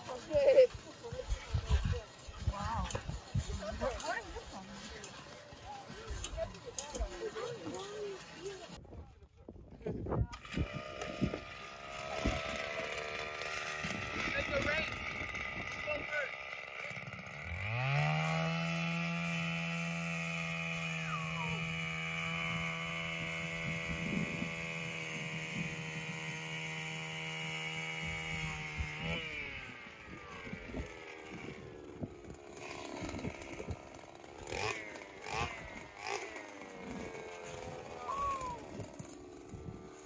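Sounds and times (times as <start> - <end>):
ice auger engine drilling: 0.0 - 8.9, 10.0 - 40.0.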